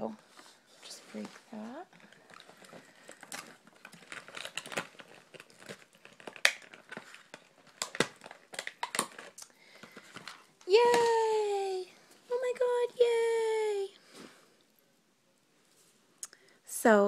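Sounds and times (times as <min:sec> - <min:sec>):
toy box crinkling: 0:01.1 - 0:11.2
plastic tabs clicking: 0:02.3 - 0:11.1.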